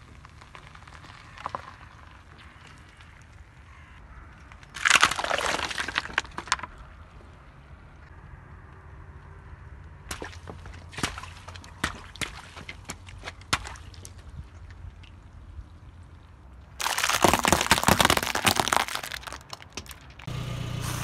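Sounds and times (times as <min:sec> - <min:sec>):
crunching and cracking under car tyre: 0:00.0 - 0:20.4
water balloons bursting: 0:16.8 - 0:21.0.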